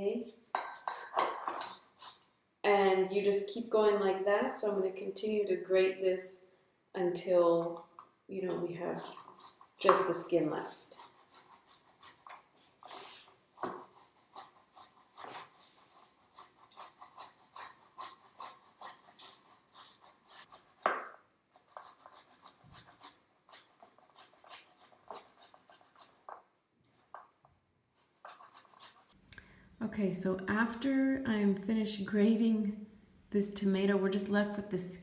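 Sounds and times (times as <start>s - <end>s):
tomato rasping on metal grater: 13.8s - 20.7s, 21.6s - 26.1s.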